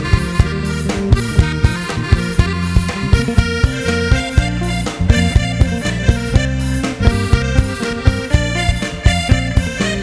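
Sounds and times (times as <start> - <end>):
drum kit beat: 0.0 - 10.0
electric bass: 0.0 - 10.0
sustained melody notes: 0.0 - 10.0.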